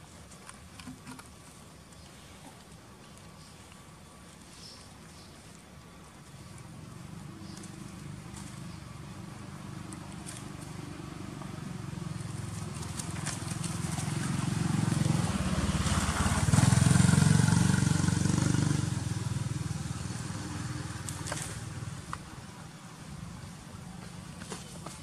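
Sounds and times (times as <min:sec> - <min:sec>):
vehicle engine passing by: 0:06.7 - 0:22.1.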